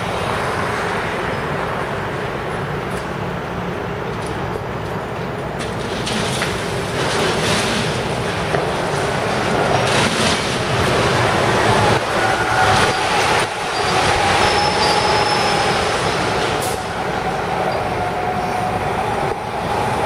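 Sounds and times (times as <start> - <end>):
excavator working at concrete: 0.0 - 20.0
heavy machinery: 0.0 - 20.0
street traffic: 0.0 - 20.0.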